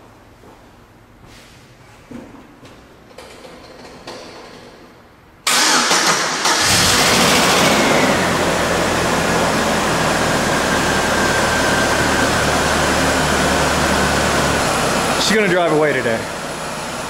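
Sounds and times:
car engine idling with faint whine: 6.6s - 17.0s.

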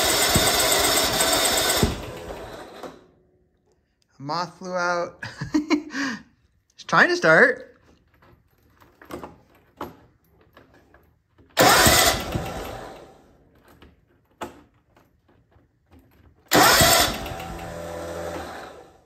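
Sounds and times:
engine starter cranking: 0.0s - 3.1s, 11.6s - 13.4s, 16.5s - 19.0s.

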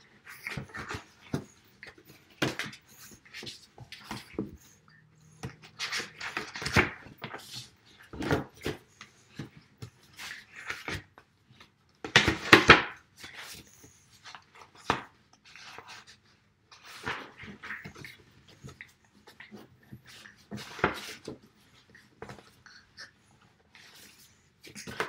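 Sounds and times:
sketchbook pages turning: 5.4s - 22.6s, 23.7s - 25.0s.

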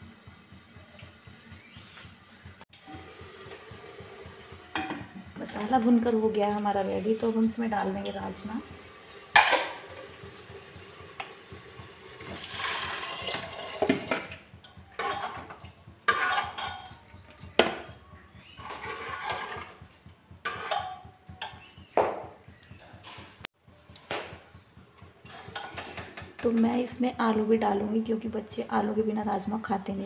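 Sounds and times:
water splashing into pot: 8.6s - 14.3s
scrapes and clinks in pot: 12.3s - 21.8s, 25.2s - 26.3s.

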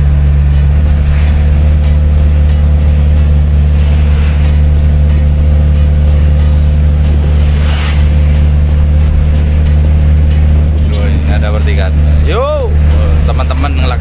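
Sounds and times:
bus swishing past: 0.0s - 14.0s
truck engine running: 0.0s - 14.0s.

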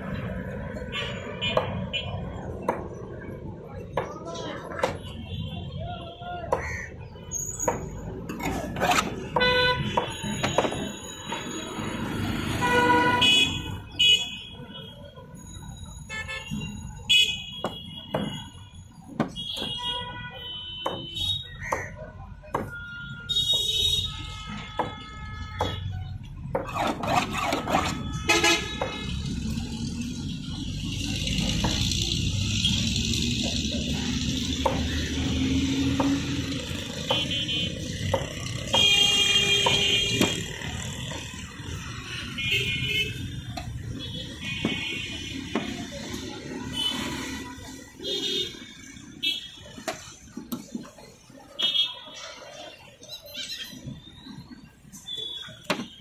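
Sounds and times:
traffic hum: 0.0s - 56.0s
vehicle horns honking: 9.0s - 10.6s, 12.4s - 15.1s, 16.1s - 18.6s, 22.7s - 29.4s, 37.0s - 40.7s, 42.2s - 45.7s.

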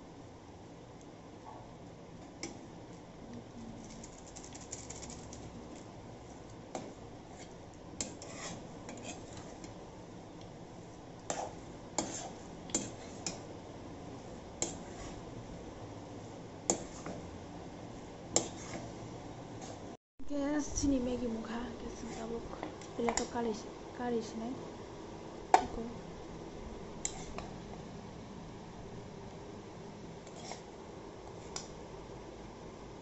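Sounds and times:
metal spatula scraping a pan: 7.3s - 9.7s, 11.3s - 13.4s, 18.4s - 18.9s, 27.0s - 27.5s, 30.2s - 30.7s.

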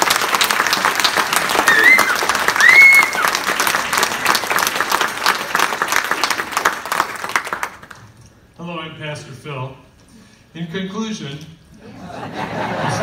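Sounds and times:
congregation applauding: 0.0s - 8.1s.

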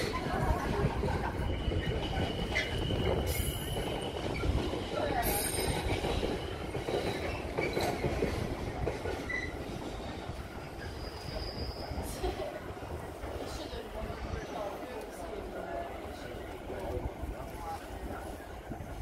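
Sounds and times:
freight wagons rumbling on rails: 0.0s - 19.0s
high-pitched wheel squeal: 10.8s - 12.1s.

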